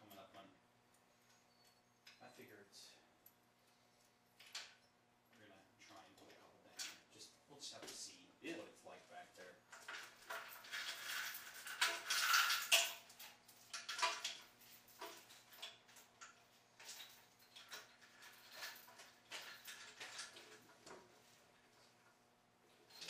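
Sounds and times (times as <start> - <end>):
chain clinking and rattling: 9.7 - 21.1, 22.8 - 23.0.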